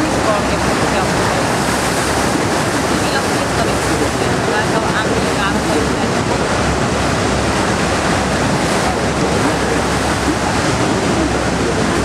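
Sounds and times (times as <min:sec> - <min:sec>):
waterfall roaring: 0:00.0 - 0:12.0
wind buffeting microphone: 0:00.0 - 0:12.0.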